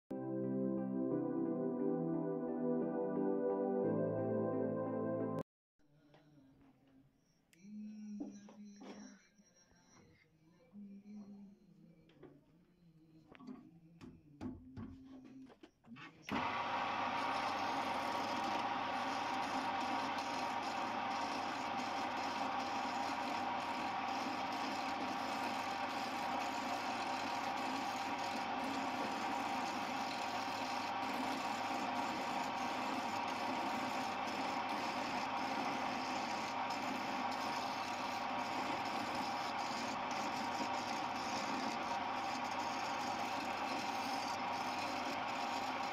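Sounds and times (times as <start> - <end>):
chisel cutting spinning wood: 16.3 - 45.9
lathe motor whining: 16.3 - 45.9.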